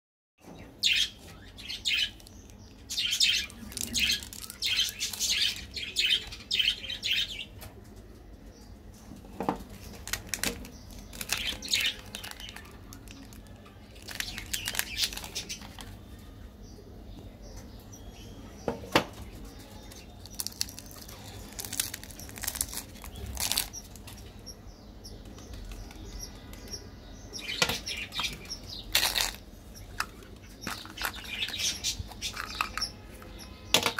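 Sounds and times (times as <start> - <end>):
plastic wrappers crinkling and tearing: 2.0 - 6.4, 9.6 - 16.0, 19.8 - 24.3, 28.2 - 32.8.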